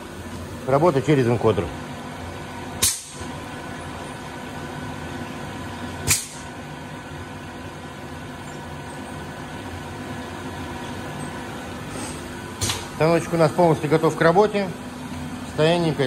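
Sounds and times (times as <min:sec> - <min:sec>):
machine humming: 0:00.0 - 0:16.0
pneumatic air hiss: 0:11.8 - 0:12.3.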